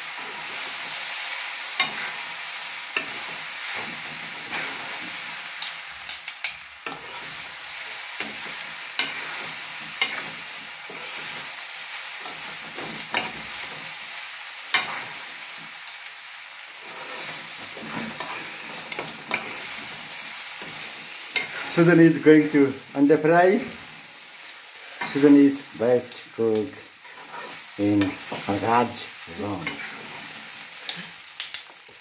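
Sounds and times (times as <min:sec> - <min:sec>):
rice sizzling in wok: 0:00.0 - 0:32.0
metal utensils clinking on pan: 0:10.0 - 0:11.1, 0:17.8 - 0:19.6.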